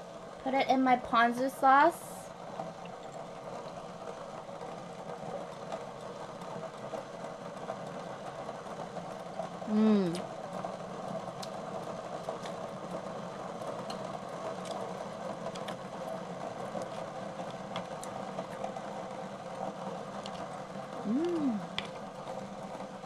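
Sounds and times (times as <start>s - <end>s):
person humming: 9.7s - 10.2s, 21.0s - 21.8s
steady low hum: 19.0s - 22.8s
mouth sounds eating: 21.0s - 21.8s.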